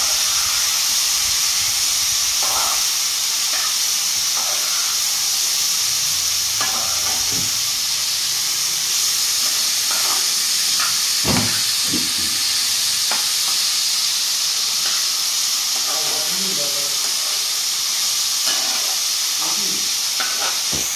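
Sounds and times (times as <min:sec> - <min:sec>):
vegetables sizzling in pan: 0:00.0 - 0:20.9
spoon scraping and knocking pan: 0:02.4 - 0:05.0, 0:06.6 - 0:07.6, 0:09.5 - 0:12.5, 0:18.4 - 0:19.0, 0:20.2 - 0:20.9.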